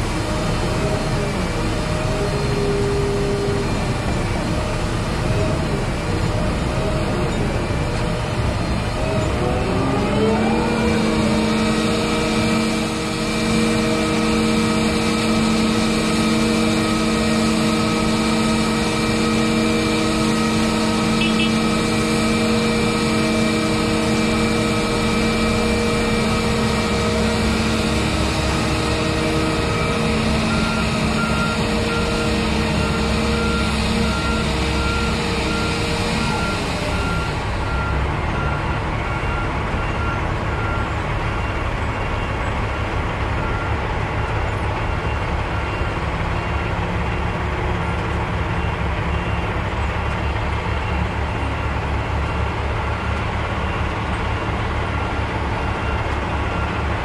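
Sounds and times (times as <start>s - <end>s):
crane engine revving: 0.0s - 57.0s
repeated warning beep: 21.2s - 21.6s.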